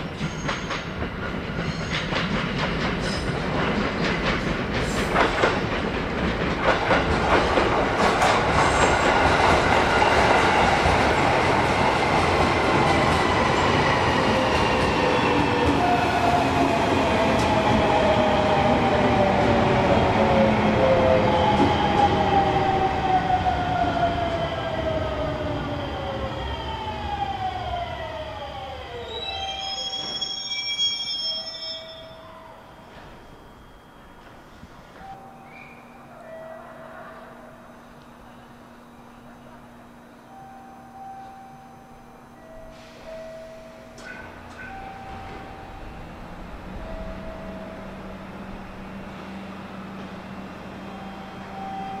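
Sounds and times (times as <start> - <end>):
electric train humming: 0.0 - 52.0
brief higher tone: 35.0 - 36.9, 40.2 - 45.8.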